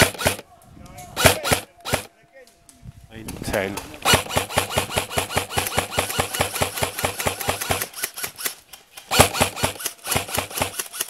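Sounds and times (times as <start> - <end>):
airsoft gun firing full-auto: 0.0 - 0.4, 1.2 - 2.1, 4.0 - 11.0.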